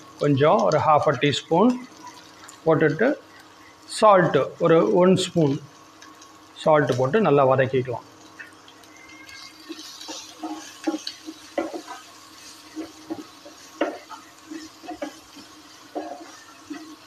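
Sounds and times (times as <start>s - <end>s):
faint sizzle: 0.0s - 17.0s
spatula scraping a frying pan: 9.0s - 17.0s.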